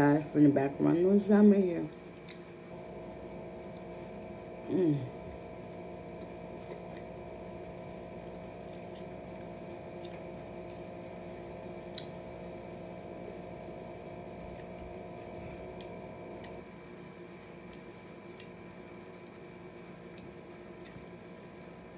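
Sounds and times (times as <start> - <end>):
steady mechanical hum: 0.0 - 21.9
chewing: 8.2 - 10.4.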